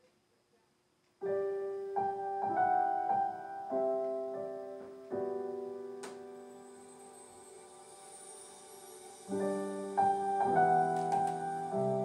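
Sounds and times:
gentle piano music: 1.2 - 12.0.

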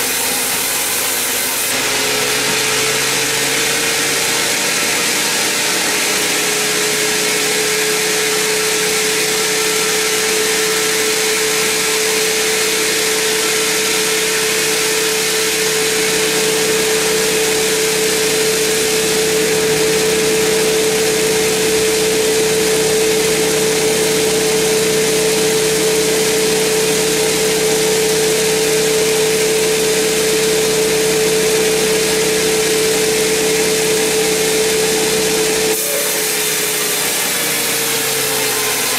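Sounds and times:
band saw humming: 0.0 - 38.9
saw blade cutting wood: 0.0 - 38.9.

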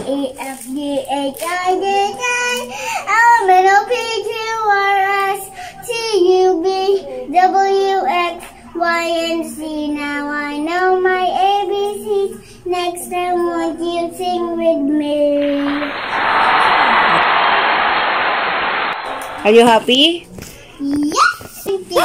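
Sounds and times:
girl singing into toy microphone: 0.0 - 15.8
steady rushing noise: 15.7 - 20.0.

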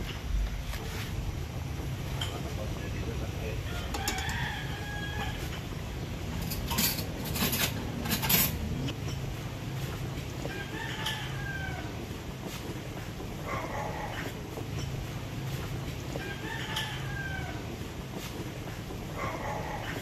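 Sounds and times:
rooster crowing: 3.6 - 5.8, 10.5 - 12.1, 16.1 - 17.8.

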